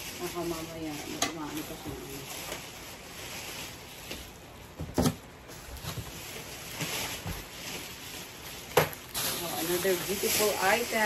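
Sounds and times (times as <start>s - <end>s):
plastic packaging rustling: 0.0s - 11.0s.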